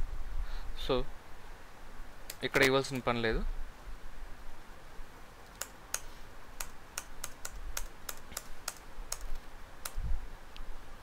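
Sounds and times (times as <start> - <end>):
keyboard keys clicking: 5.5 - 10.0.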